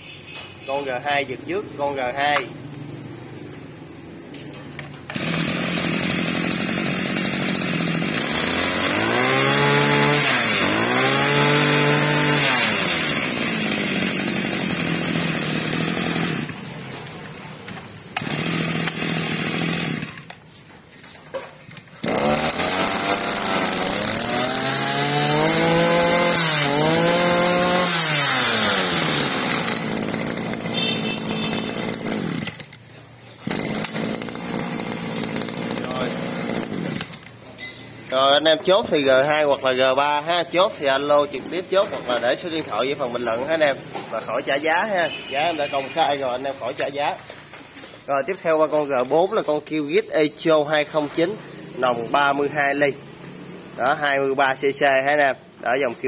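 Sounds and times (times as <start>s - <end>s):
brush cutter engine revving: 4.8s - 17.0s, 18.1s - 20.4s, 21.8s - 32.8s, 33.4s - 37.4s.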